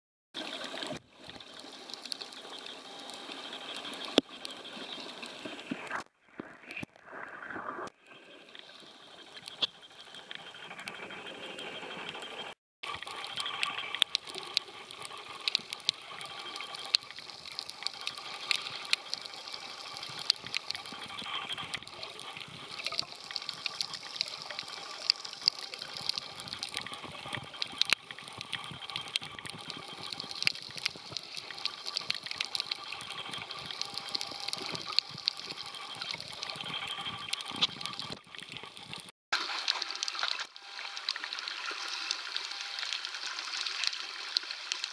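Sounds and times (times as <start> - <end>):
water sloshing and bubbling: 0.4 - 44.9
underwater clicks: 20.0 - 40.4.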